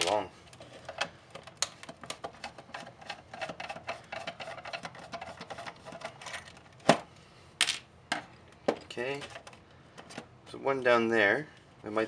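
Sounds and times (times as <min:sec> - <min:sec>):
screwdriver clicks and scrapes: 0:00.8 - 0:06.6.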